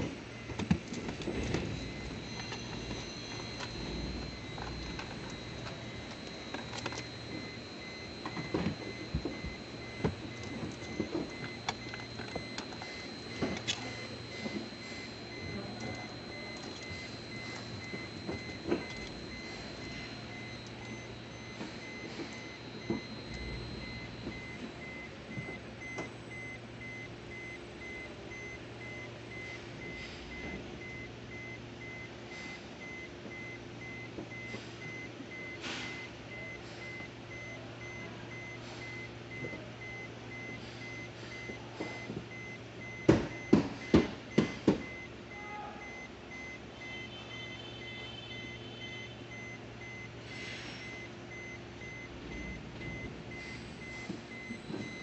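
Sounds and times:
repeating electronic beep: 1.2 - 28.1.

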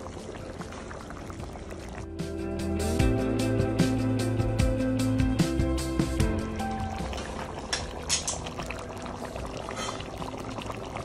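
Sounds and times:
curry bubbling and popping: 0.0 - 2.3, 6.6 - 11.0
background music: 0.0 - 11.0.

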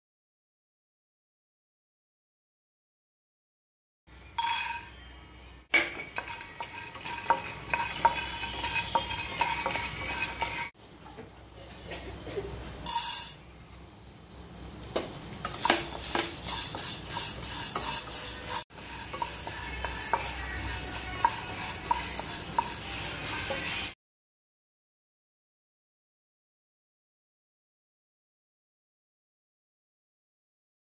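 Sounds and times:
dry beans rattling in a pan: 5.8 - 10.7, 12.8 - 13.4, 15.4 - 24.0.

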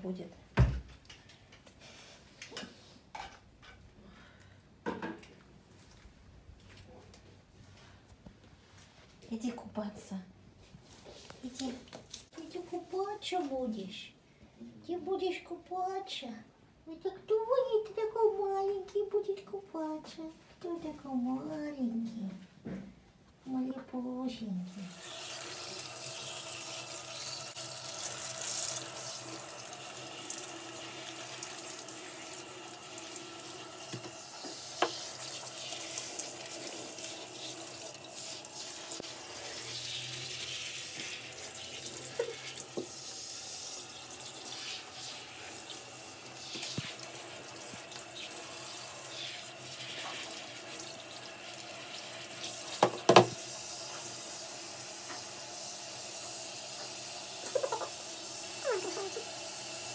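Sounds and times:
shower water running: 24.7 - 59.9.

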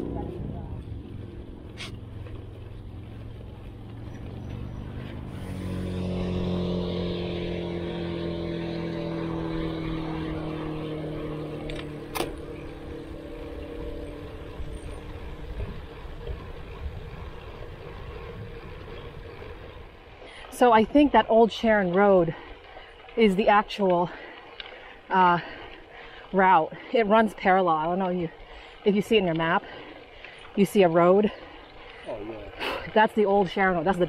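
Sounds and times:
wind and road noise: 0.0 - 34.0
car passing by: 2.8 - 15.4.

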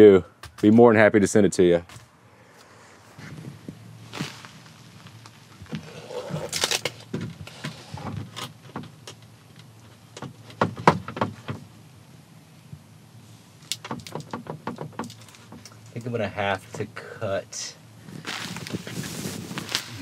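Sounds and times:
plastic film crinkling: 6.4 - 7.1, 18.2 - 20.0
hard plastic clicks and knocks: 10.2 - 11.7, 13.7 - 15.8.

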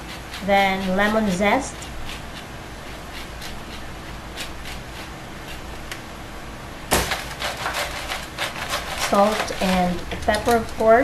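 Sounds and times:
lemon scraping on grater: 0.0 - 5.9, 7.1 - 11.0
loud knock or clatter: 6.9 - 7.3.

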